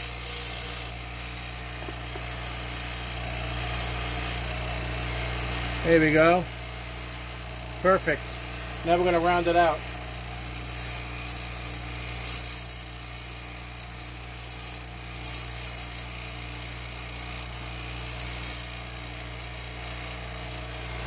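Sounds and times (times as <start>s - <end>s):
bench grinder motor hum: 0.0s - 21.0s
metal grinding on wheel: 10.5s - 18.8s.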